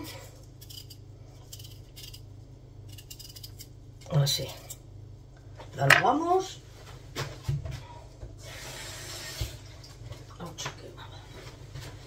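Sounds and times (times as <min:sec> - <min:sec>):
kitchen tap running: 0:08.3 - 0:10.3.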